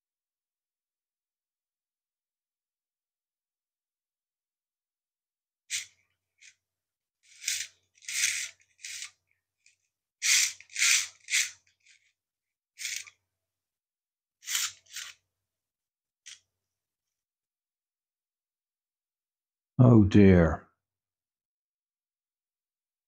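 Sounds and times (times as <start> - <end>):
plastic parts scraping and clicking: 7.3 - 12.1.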